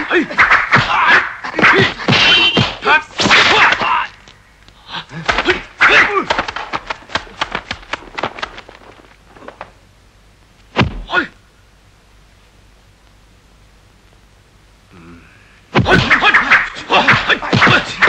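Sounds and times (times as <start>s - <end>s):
punch and block whacks: 0.3s - 4.0s, 5.2s - 8.6s, 10.7s - 11.1s, 15.7s - 18.0s.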